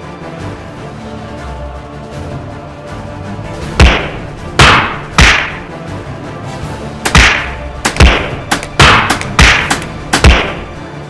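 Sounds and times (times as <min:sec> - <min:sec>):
faint background music: 0:00.0 - 0:11.0.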